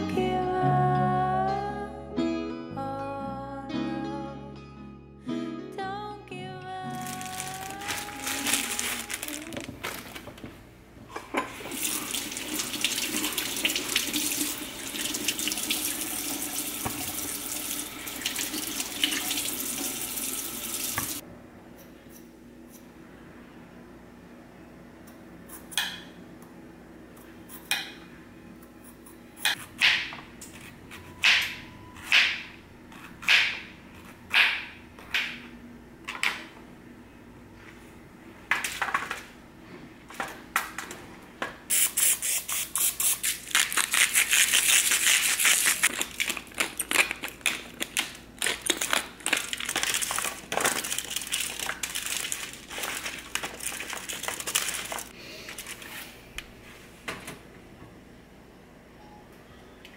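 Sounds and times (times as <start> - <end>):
aluminium foil crinkling: 6.9 - 10.4, 42.8 - 56.0.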